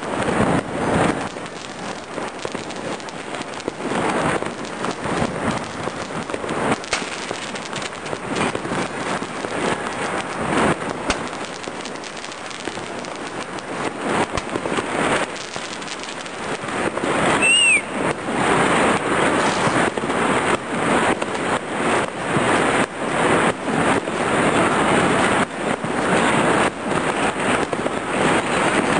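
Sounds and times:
firecrackers crackling and banging: 0.0 - 28.9
firework whistle: 13.9 - 21.2.

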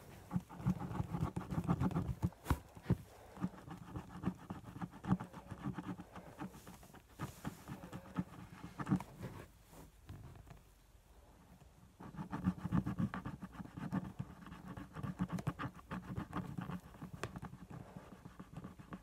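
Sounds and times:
phone rubbing against hair and skin: 0.0 - 10.4.

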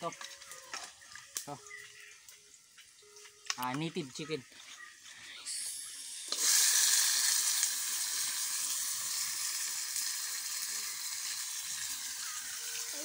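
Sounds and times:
chicken sizzling in hot oil: 4.9 - 13.0.

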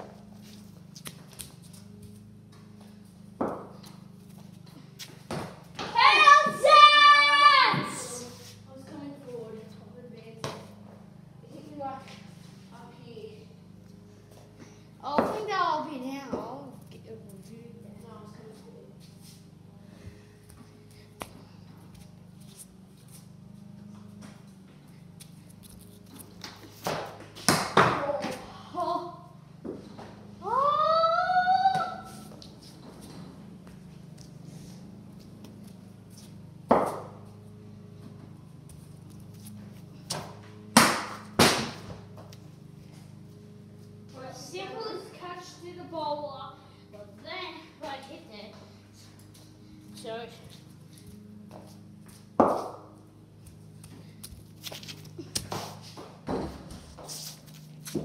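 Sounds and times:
steady low hum: 0.0 - 58.0
ball knocking on concrete and bat: 3.4 - 3.9, 26.4 - 28.4, 36.7 - 37.2, 52.4 - 52.9
loud drawn-out shout: 5.9 - 8.3.

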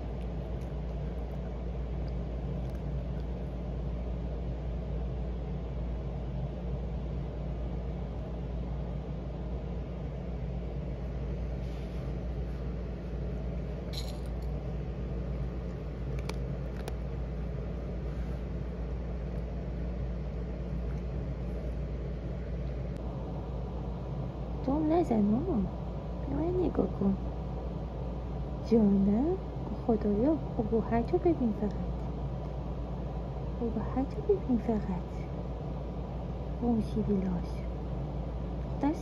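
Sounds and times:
cat kibble clicking: 16.1 - 17.0.

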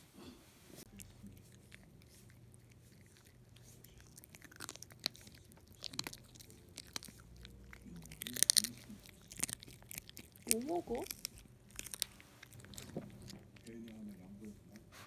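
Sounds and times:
dog crunching a treat: 0.9 - 15.0.

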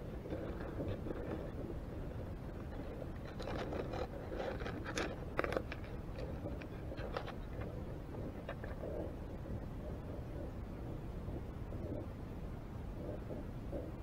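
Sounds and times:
low underwater rumble: 0.0 - 14.0
crab shells clicking and scraping: 0.2 - 10.2.

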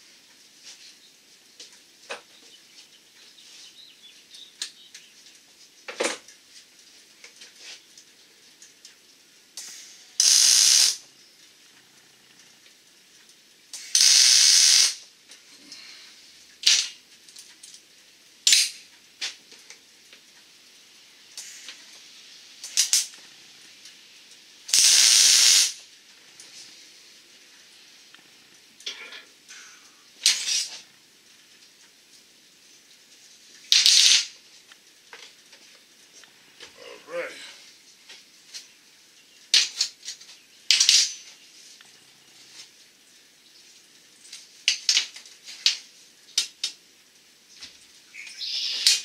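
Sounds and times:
welder hissing bursts: 9.6 - 11.0, 13.8 - 15.0, 24.7 - 25.8.

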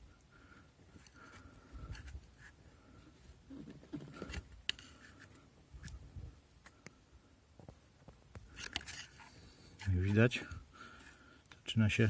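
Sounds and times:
injector scraping and clicking: 8.3 - 10.3.

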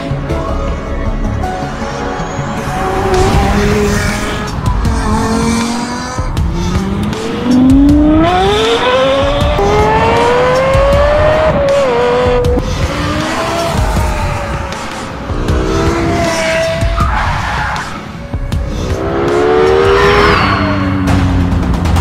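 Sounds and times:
background music: 0.0 - 22.0
sports car engine revving: 2.7 - 16.9.

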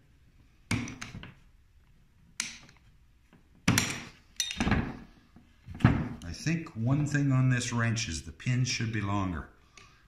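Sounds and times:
metal tools clinking on wood: 3.8 - 5.0.

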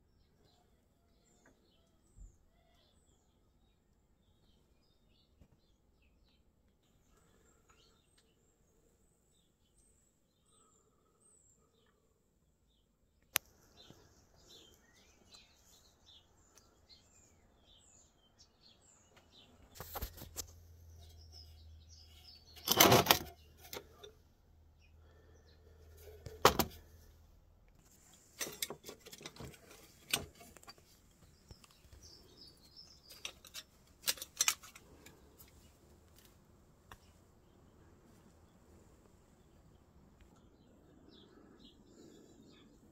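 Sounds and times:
birds chirping faintly: 0.0 - 42.9
metal parts knocking and rattling: 22.6 - 24.1, 28.4 - 30.8, 33.1 - 34.9.

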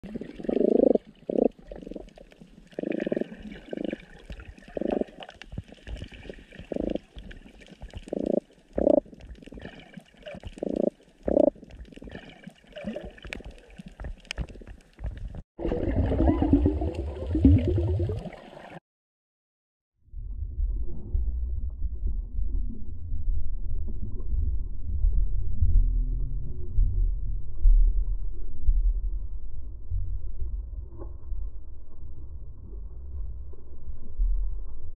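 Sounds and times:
muffled underwater gurgling: 0.0 - 18.8.

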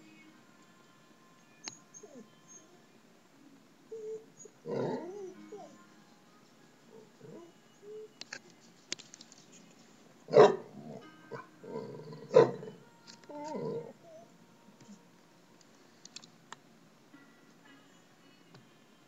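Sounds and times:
dog whining: 1.6 - 2.8, 3.9 - 5.8, 6.9 - 8.1, 10.3 - 14.3.

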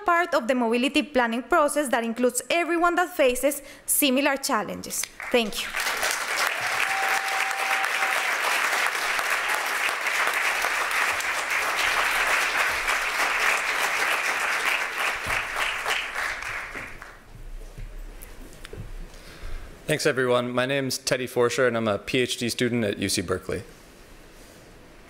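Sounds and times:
audience applauding: 5.2 - 17.3.

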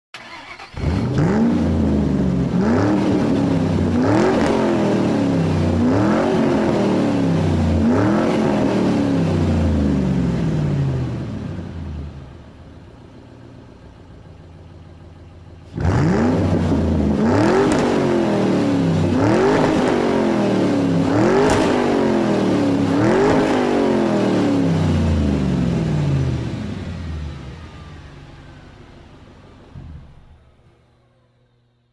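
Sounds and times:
motorcycle engine revving: 0.2 - 12.3, 15.6 - 28.5.

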